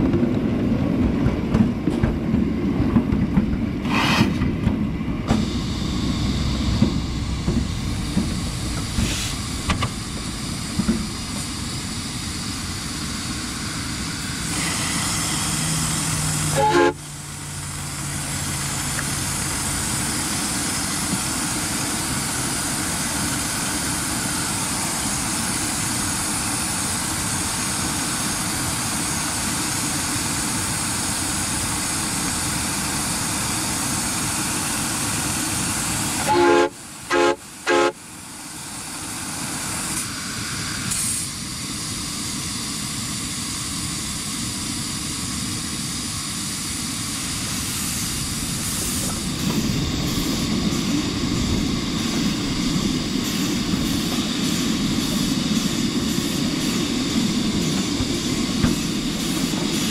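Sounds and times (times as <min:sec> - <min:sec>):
steam engine hissing: 0:05.2 - 0:59.9
steam whistle toots: 0:16.5 - 0:17.0, 0:36.2 - 0:38.0.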